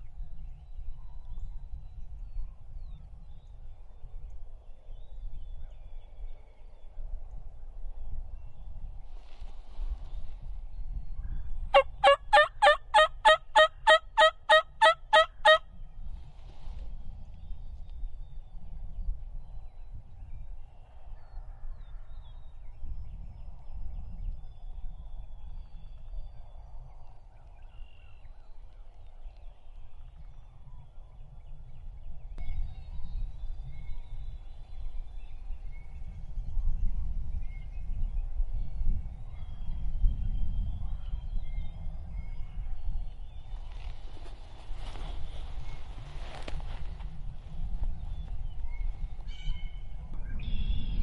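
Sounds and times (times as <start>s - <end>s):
turkey yelps: 11.8s - 15.6s.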